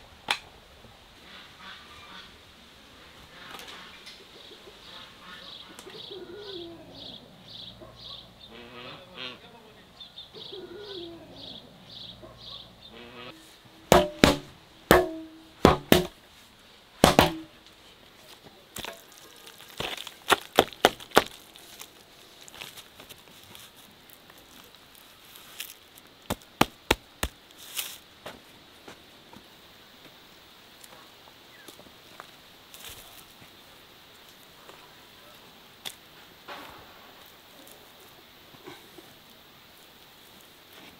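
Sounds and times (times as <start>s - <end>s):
birds calling: 3.1s - 15.9s
hoe knocking on blocks: 13.9s - 16.2s, 17.0s - 17.5s
hoe slapping wet mud: 13.9s - 16.2s, 17.0s - 17.5s, 18.8s - 21.6s.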